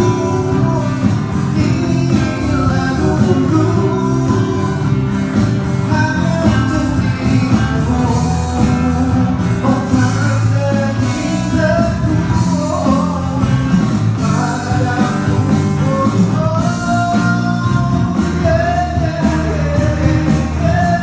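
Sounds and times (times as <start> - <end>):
electronic drum pad beat: 0.0 - 10.4
acoustic guitar: 0.0 - 21.0
person singing into microphone: 0.0 - 21.0.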